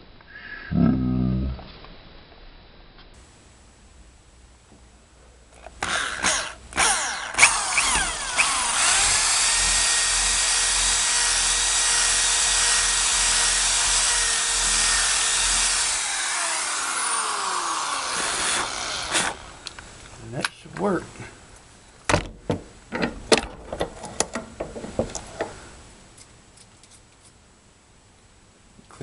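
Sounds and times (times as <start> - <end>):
electric drill boring wood: 5.8 - 19.8.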